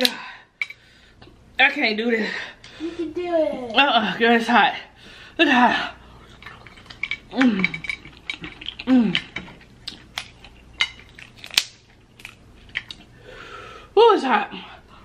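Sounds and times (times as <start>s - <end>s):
crab shells cracking: 6.8s - 13.0s.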